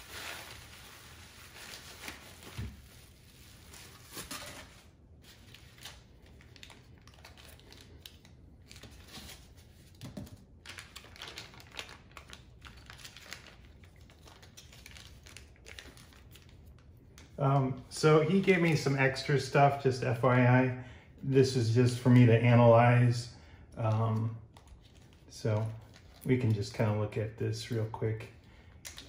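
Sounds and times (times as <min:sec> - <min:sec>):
plastic bags crinkling: 0:00.0 - 0:09.9, 0:10.5 - 0:19.5.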